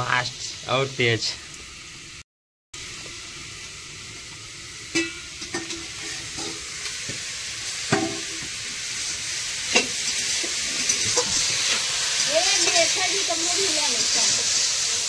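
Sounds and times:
steady hiss: 0.0s - 2.2s, 2.8s - 15.0s
masher scraping steel pot: 9.0s - 13.1s.

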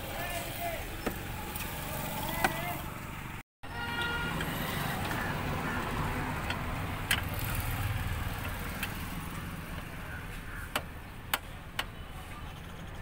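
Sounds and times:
background traffic noise: 0.0s - 13.0s
car horn toot: 3.6s - 4.9s.

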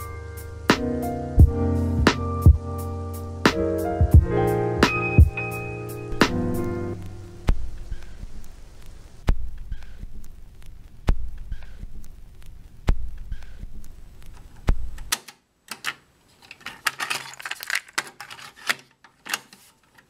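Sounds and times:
slow deep beat with clicks: 0.7s - 2.8s, 3.4s - 5.5s, 6.1s - 8.1s, 9.2s - 12.2s, 12.8s - 14.0s
jangling clicks and rattles: 16.4s - 19.4s.

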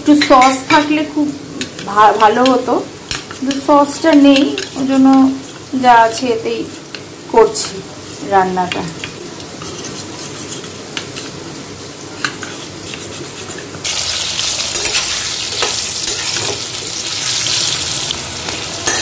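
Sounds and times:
potatoes sizzling in hot oil: 0.0s - 12.9s, 13.6s - 19.0s
spoon clinking in steel bowl: 0.1s - 0.8s.

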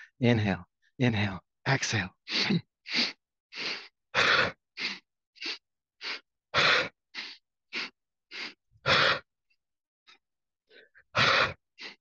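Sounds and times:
man sniffing inhales: 2.3s - 9.2s, 10.7s - 12.0s.

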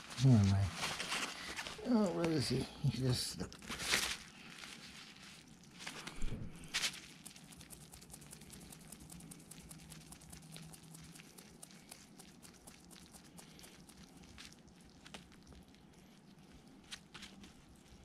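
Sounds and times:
hedgehog crunching food: 0.0s - 18.0s.

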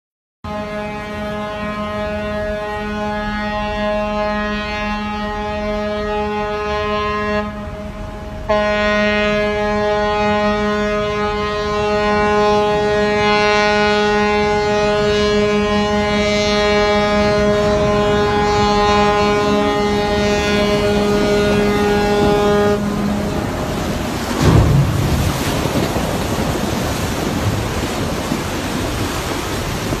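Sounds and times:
ship horn blast: 0.4s - 30.0s
water and surf rushing: 5.3s - 30.0s
low thump: 24.3s - 26.8s.

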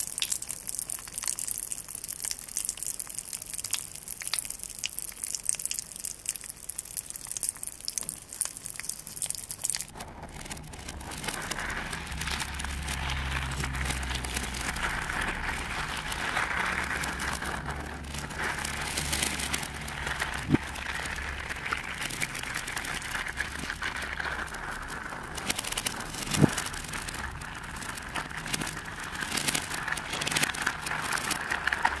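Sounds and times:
slime crackling in plastic cup: 0.0s - 32.0s
slime crunching and squishing: 0.0s - 32.0s.

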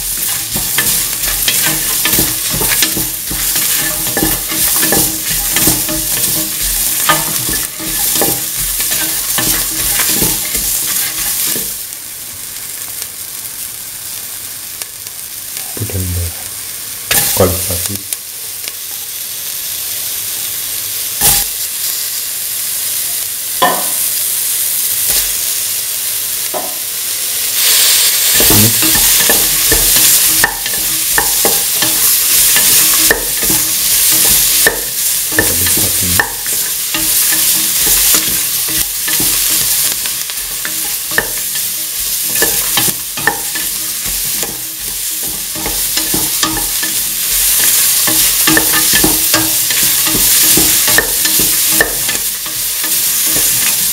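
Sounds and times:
spatula scraping pan: 0.0s - 11.8s, 27.6s - 53.9s
vegetables sizzling in oil: 0.0s - 53.9s.

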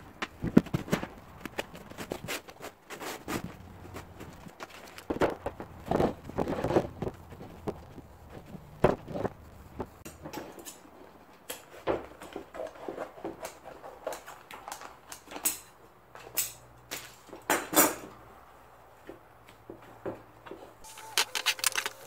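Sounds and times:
vinyl crackling and rustling: 0.0s - 15.4s, 20.6s - 22.0s
sharp clicks and knocks: 20.5s - 22.0s.

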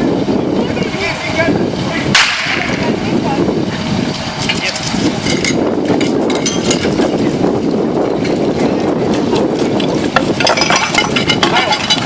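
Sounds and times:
fire engine rumbling: 0.0s - 12.0s
gear clattering: 4.4s - 7.2s, 8.0s - 12.0s.

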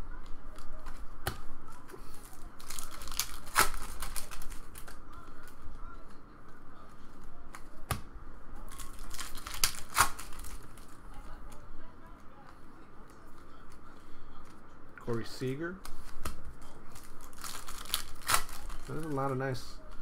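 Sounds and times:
foil wrapper crinkling and tearing: 2.0s - 5.6s, 8.6s - 11.0s, 16.0s - 19.6s
cards snapping: 2.6s - 5.6s, 8.8s - 10.7s, 17.4s - 19.2s.

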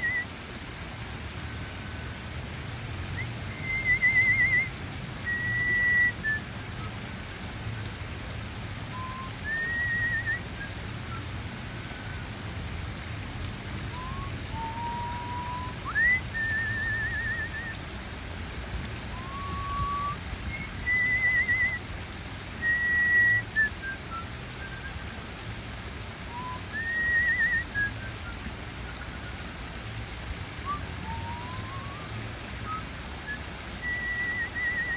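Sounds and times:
person whistling a tune: 0.0s - 0.3s, 3.1s - 7.0s, 8.9s - 12.2s, 13.9s - 17.8s, 19.1s - 21.9s, 22.6s - 25.2s, 26.3s - 29.6s, 30.6s - 34.9s
water spilling over rocks: 0.0s - 34.9s.

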